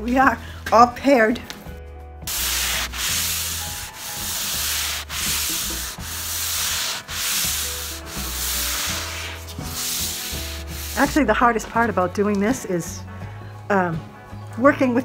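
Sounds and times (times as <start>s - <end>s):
sanding pad rubbing wood: 2.3s - 11.2s.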